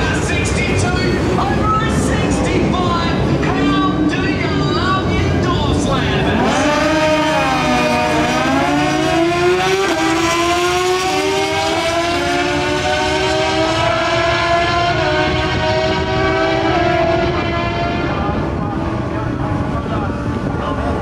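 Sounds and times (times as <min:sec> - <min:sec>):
motorcycle engines at full throttle: 0:00.0 - 0:21.0.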